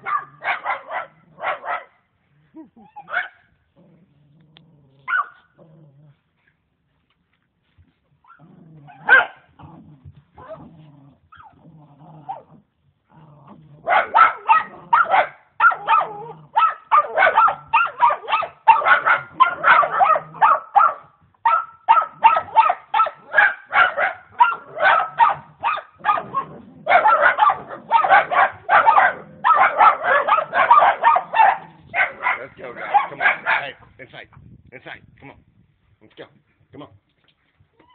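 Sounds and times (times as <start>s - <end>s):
dog barking rapidly: 0.0s - 2.0s, 3.1s - 3.4s, 5.1s - 5.4s, 8.9s - 9.5s, 13.8s - 33.8s
dog growling: 3.8s - 6.2s, 8.4s - 15.0s, 15.8s - 16.6s, 24.6s - 33.6s.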